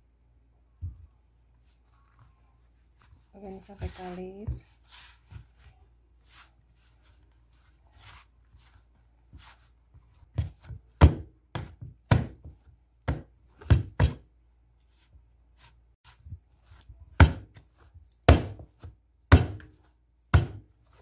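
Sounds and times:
dull thumps of dough: 0:02.9 - 0:14.4, 0:15.0 - 0:21.0
dough scraping in plastic bowl: 0:03.0 - 0:10.8.

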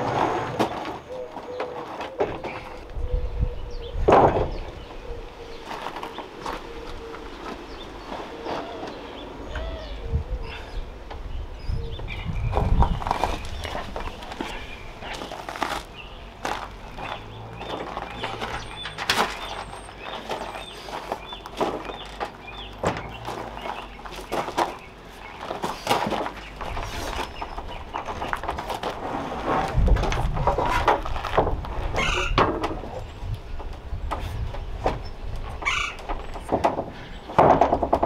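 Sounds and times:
footsteps on gravel: 0:05.6 - 0:09.0, 0:12.4 - 0:32.0
solar panel knocking and scraping: 0:12.3 - 0:38.0.

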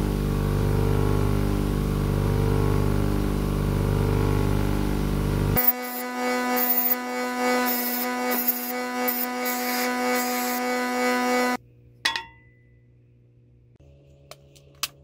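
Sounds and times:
bench grinder motor whine: 0:00.0 - 0:11.6.

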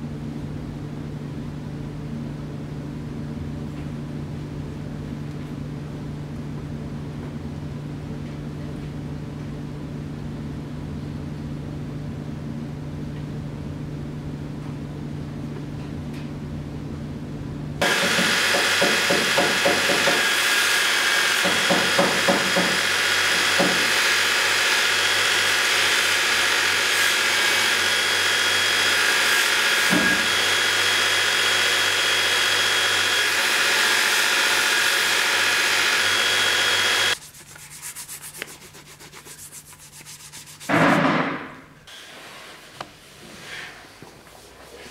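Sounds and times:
belt grinder sanding leather: 0:17.8 - 0:40.8.

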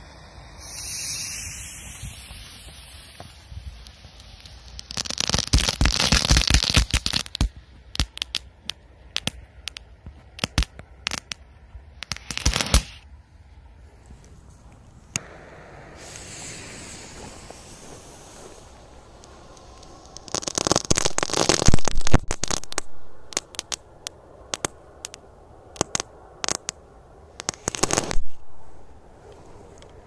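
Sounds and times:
firework fuse hissing: 0:00.0 - 0:08.4, 0:12.0 - 0:13.1, 0:15.2 - 0:25.2, 0:27.4 - 0:28.8
firework sharp cracks: 0:00.0 - 0:11.4, 0:12.0 - 0:13.0, 0:15.1 - 0:26.8, 0:27.4 - 0:28.9
firework crackling pops: 0:00.0 - 0:13.1, 0:15.1 - 0:28.9.

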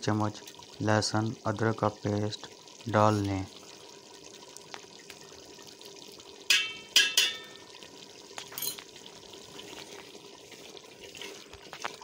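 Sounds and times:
lentils sizzling in oil: 0:00.0 - 0:12.0
metal spoon knocking on pot: 0:06.5 - 0:07.7.

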